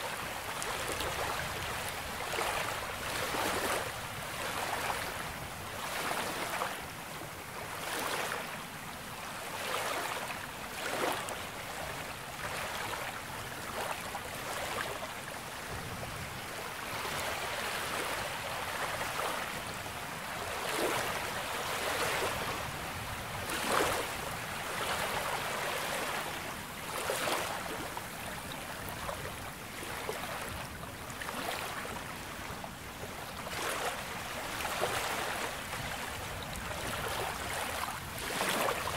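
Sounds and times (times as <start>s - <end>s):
small waves breaking on shore: 0.0s - 38.9s.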